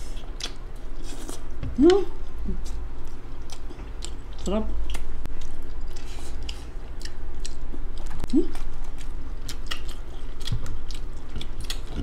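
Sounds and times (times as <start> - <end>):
chewing and mouth smacks: 0.0 - 1.5, 2.2 - 12.0
person humming: 1.7 - 2.6, 8.2 - 8.6.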